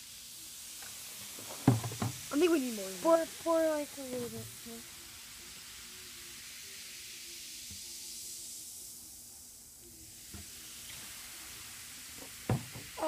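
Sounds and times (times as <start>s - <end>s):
bubbles fizzing: 0.7s - 7.0s, 10.1s - 13.0s.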